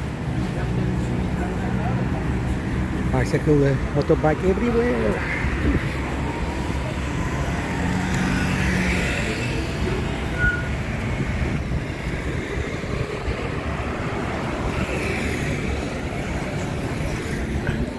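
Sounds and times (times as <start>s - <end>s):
scooters and cars passing: 0.0s - 17.9s
high beep: 10.4s - 10.7s.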